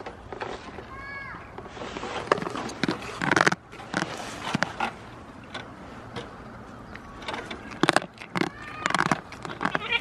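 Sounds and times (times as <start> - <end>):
goat chewing and crunching: 2.2 - 5.0, 7.2 - 10.0.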